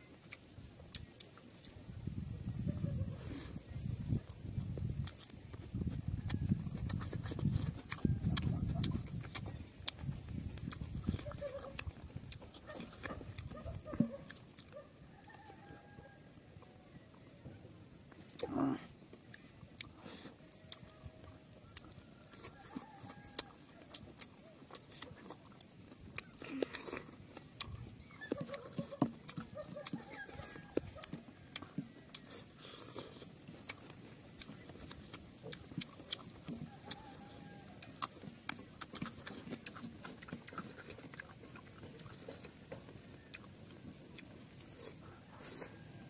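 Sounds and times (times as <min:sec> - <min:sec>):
chewing and mouth noises: 0:00.1 - 0:16.4, 0:18.0 - 0:46.0.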